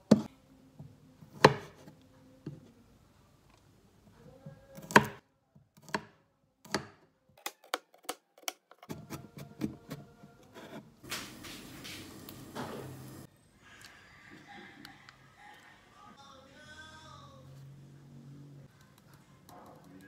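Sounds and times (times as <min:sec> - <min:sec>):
water boiling in a pot: 0:11.0 - 0:13.3.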